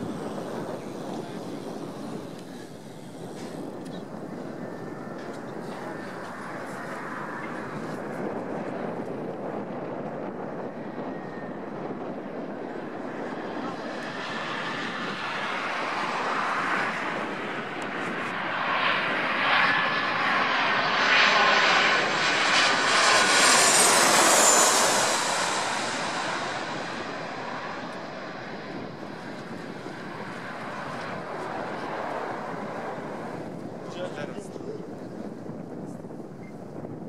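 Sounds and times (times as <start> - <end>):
jet airliner passing overhead: 0.0 - 37.0.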